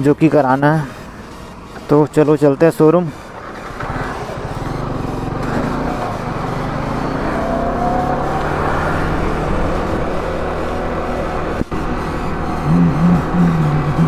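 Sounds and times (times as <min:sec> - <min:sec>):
motorcycle engine accelerating: 0:01.0 - 0:14.0.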